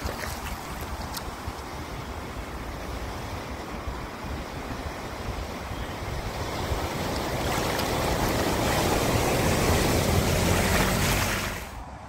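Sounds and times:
car splashing through floodwater: 3.8 - 11.9.

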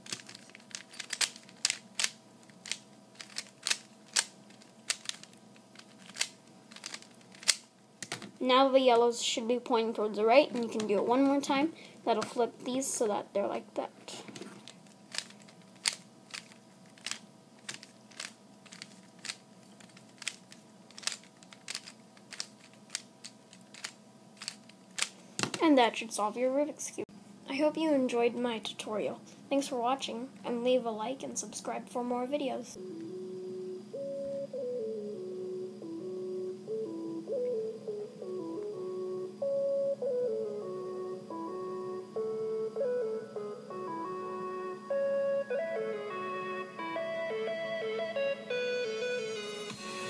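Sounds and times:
puzzle cube clacking as turned: 0.0 - 8.3, 14.3 - 25.2.

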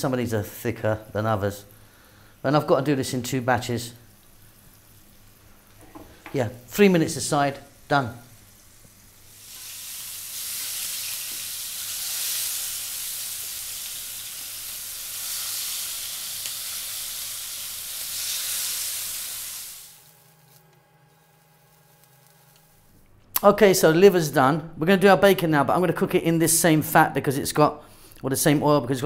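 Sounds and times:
liver sizzling in frying pan: 4.0 - 20.5, 21.2 - 22.9.

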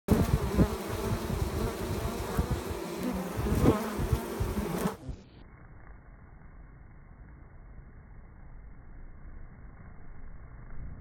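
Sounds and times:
honeybees buzzing: 0.1 - 5.2.

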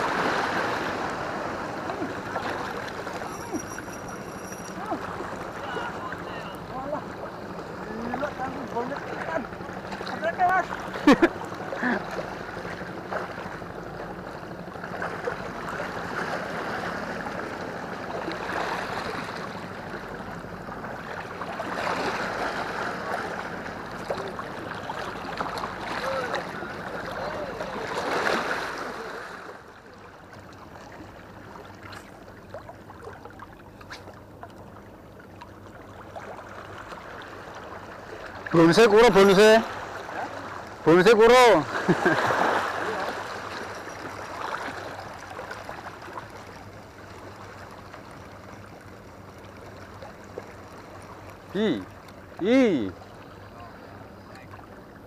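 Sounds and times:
water lapping against rocks: 0.0 - 3.8, 20.8 - 55.0.

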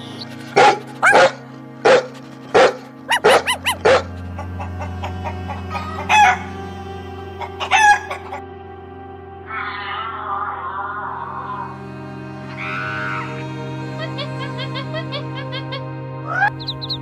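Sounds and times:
background music: 0.0 - 17.0
dog barking: 0.6 - 4.1
chicken calls: 3.1 - 6.6, 7.4 - 8.4.

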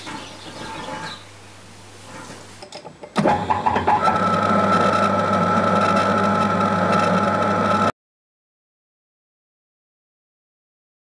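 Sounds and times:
metal lathe whine: 3.2 - 7.9.

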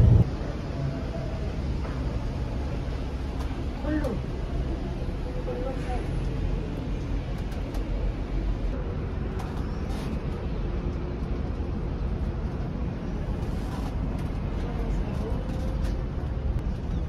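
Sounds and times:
wind on microphone: 0.0 - 0.3
bus rumbling: 0.0 - 17.0
passing traffic: 0.0 - 17.0.

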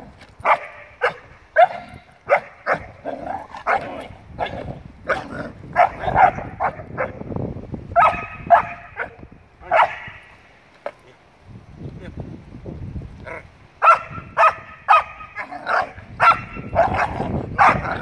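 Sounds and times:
young dog yapping: 8.0 - 10.2, 13.8 - 18.0.

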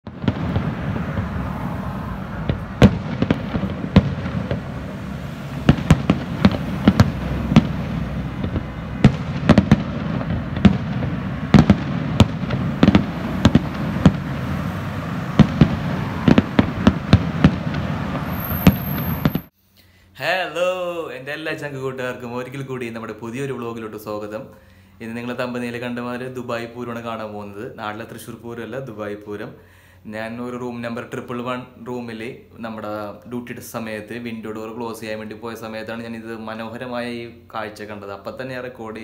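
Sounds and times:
firework shells bursting: 0.1 - 1.7, 2.3 - 19.5
rumble of continuous reports: 0.1 - 18.3.

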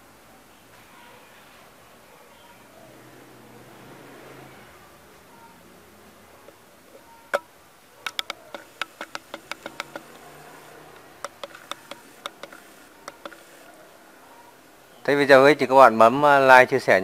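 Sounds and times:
sharp irregular clicks and taps: 7.3 - 13.8.

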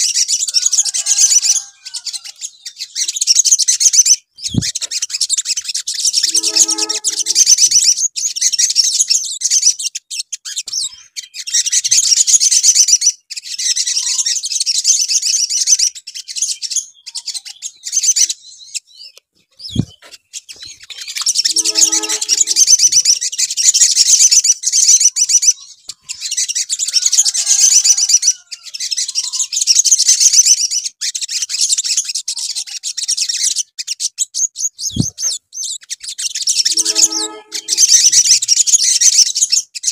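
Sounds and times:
bird trilling song: 0.0 - 12.2, 15.4 - 31.7, 33.2 - 39.9
lower bird call: 6.1 - 7.9, 21.2 - 23.3, 36.6 - 38.4.

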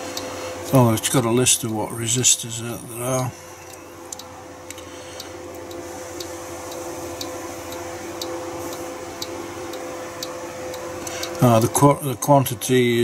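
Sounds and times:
low electrical hum: 0.0 - 13.0
clock ticking: 5.6 - 11.6.

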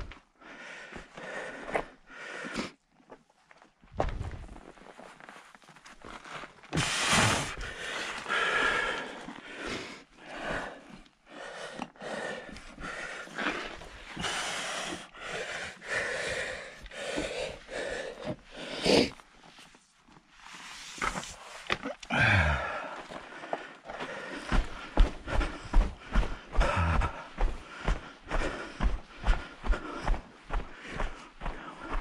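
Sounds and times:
person breathing hard: 0.0 - 2.8, 6.7 - 19.2, 22.0 - 32.0.

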